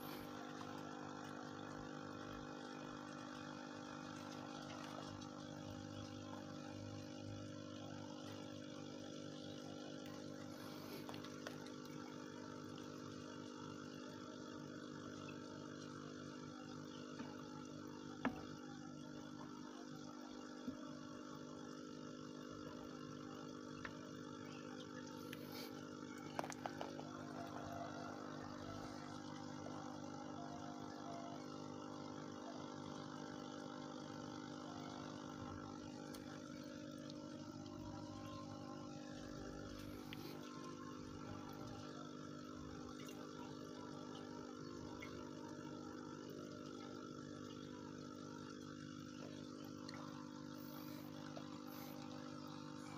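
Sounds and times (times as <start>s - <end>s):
aquarium air pump humming: 0.0s - 52.9s
air bubbling fizz: 23.5s - 29.6s, 33.9s - 52.9s.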